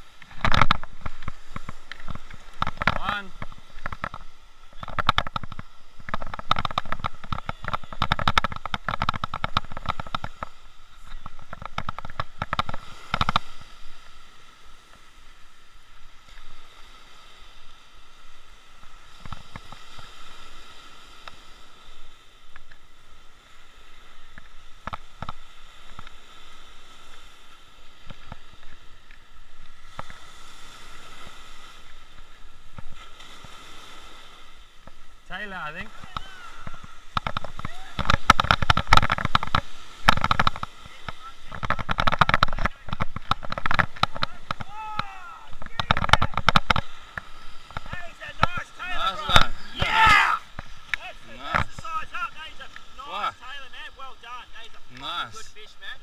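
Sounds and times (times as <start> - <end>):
surf washing on shore: 0.0 - 56.0
reel clicks: 0.2 - 14.2, 35.8 - 52.0.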